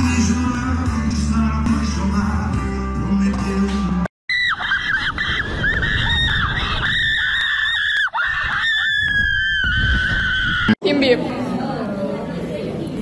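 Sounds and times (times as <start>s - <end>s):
music playing: 0.0s - 4.1s.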